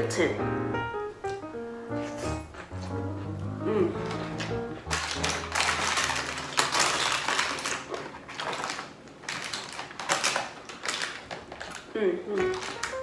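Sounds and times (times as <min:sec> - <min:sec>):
foil and shells crinkling: 0:04.0 - 0:13.0.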